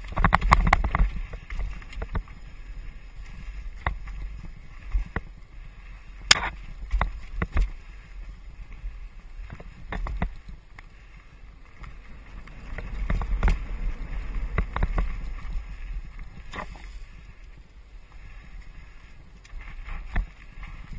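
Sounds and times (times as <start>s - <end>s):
bike clanking and rattling: 0.0s - 2.5s
bike rumbling over dirt: 0.0s - 20.9s.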